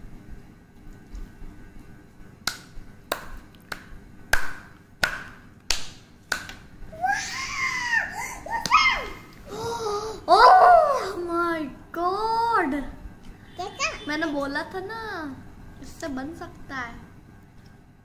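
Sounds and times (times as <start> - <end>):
sharp snapping clicks: 2.4 - 6.6
child's high wordless voice: 13.6 - 14.2.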